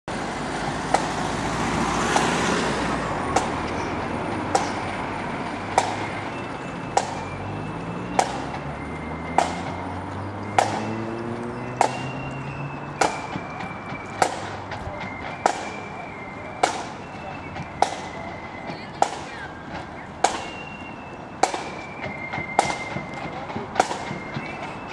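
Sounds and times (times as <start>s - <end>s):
street traffic hum: 0.1s - 24.9s
vehicle engine rising in pitch: 0.1s - 24.9s
drum tapping a sharp beat: 9.3s - 9.9s, 11.8s - 15.9s, 21.4s - 24.9s.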